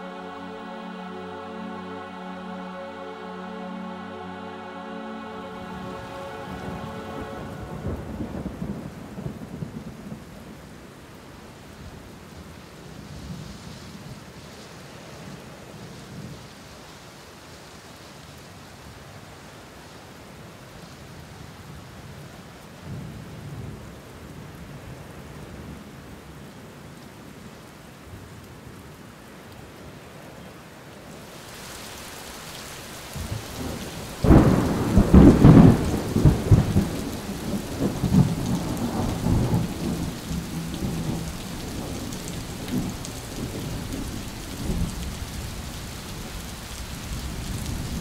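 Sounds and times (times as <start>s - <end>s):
rain hiss: 0.0s - 48.0s
thunderclap and rolling rumble: 6.8s - 10.7s, 33.0s - 48.0s.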